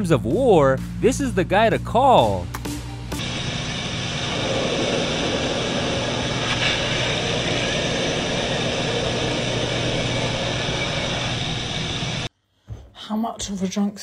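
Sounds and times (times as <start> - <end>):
aircraft engine hum: 0.8 - 12.3
rushing wind noise: 3.2 - 12.3.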